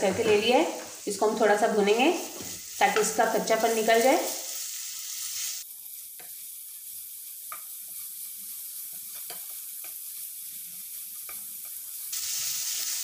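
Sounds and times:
food sizzling in hot fat: 0.0 - 13.0
spatula stirring in pan: 5.9 - 12.0
spatula tapping a pan: 8.9 - 10.0.

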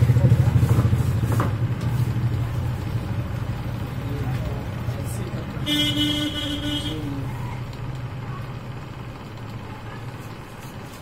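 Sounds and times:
passing traffic rumble: 0.0 - 11.0
vehicle horn: 5.6 - 7.2.

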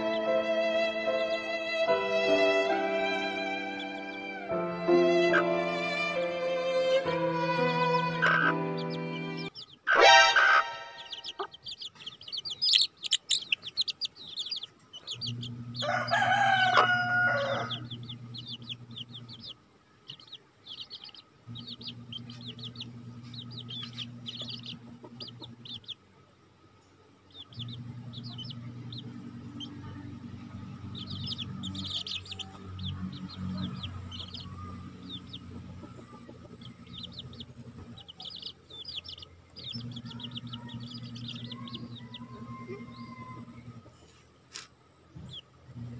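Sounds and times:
chicks peeping: 0.0 - 6.3, 7.0 - 45.9
chicken call: 8.1 - 9.0, 9.6 - 11.8, 15.8 - 17.8
low steady hum: 10.6 - 45.9.

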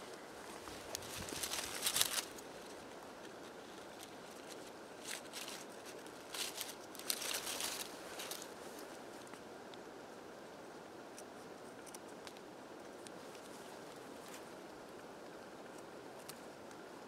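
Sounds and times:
leather rustling over dry leaves: 0.0 - 9.4.

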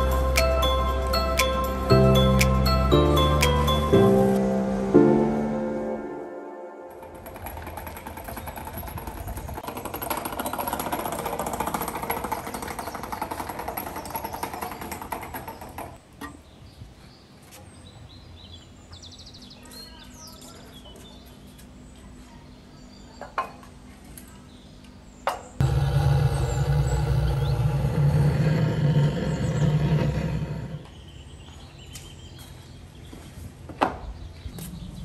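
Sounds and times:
quiet outdoor ambience: 0.0 - 35.0
iron stand rattling over paving: 6.9 - 16.0.

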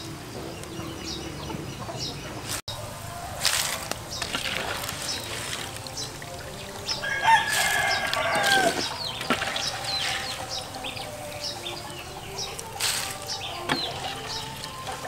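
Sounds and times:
rooster crowing: 2.7 - 6.0, 6.6 - 15.0.

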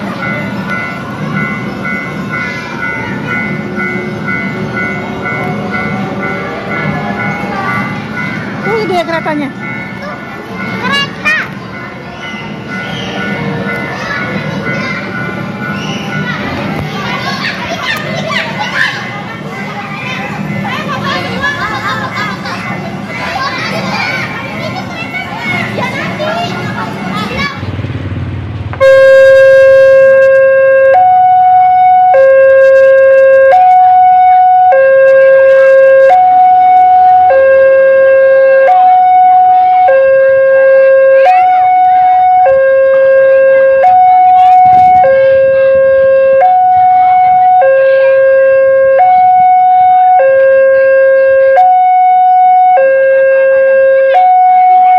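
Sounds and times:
level-crossing two-tone alarm: 28.8 - 54.9.

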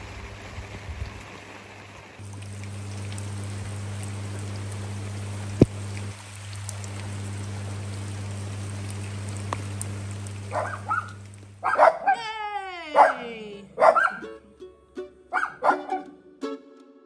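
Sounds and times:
rain on stone patio: 0.0 - 12.2
steady low hum: 2.2 - 12.1.

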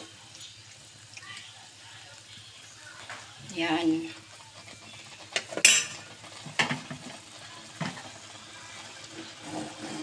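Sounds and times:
food sizzling: 0.0 - 10.0
metal spatula scraping frying pan: 9.1 - 10.0.

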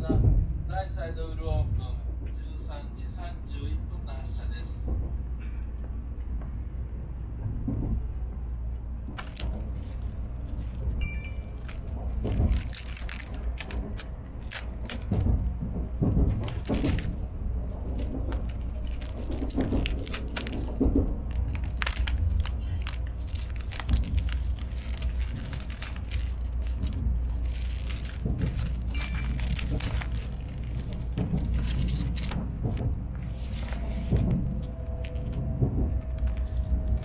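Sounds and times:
train cabin rumble: 0.0 - 37.0
plastic film crinkling: 9.1 - 37.0.

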